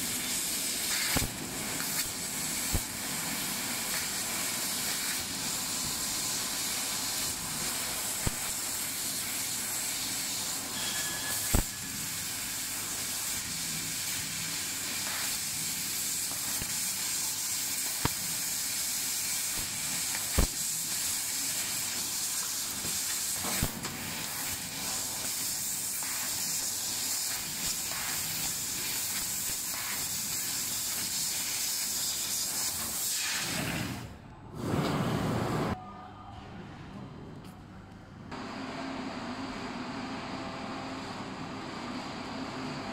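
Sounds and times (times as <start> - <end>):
laser cutter gas hissing: 0.0 - 34.1.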